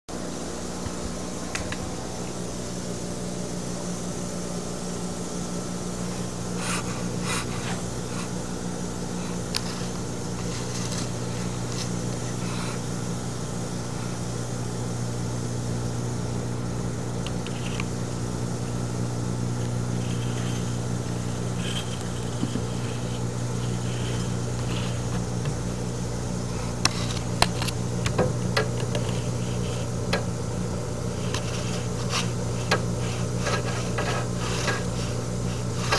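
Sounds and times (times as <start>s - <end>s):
low mechanical hum: 0.1s - 35.9s
small clicks and scrapes: 6.1s - 8.4s, 9.2s - 12.8s, 17.2s - 18.0s, 19.6s - 25.7s, 26.5s - 30.3s, 31.1s - 35.9s.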